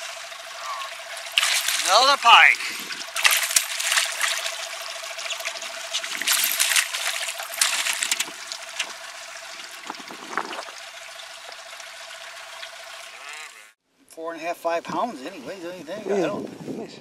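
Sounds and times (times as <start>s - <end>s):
fish splashing at the surface: 0.0s - 13.2s.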